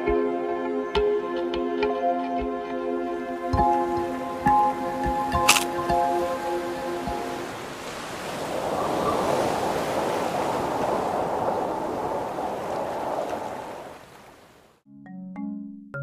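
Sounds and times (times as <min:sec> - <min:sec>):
ocean waves rushing: 0:03.7 - 0:14.8.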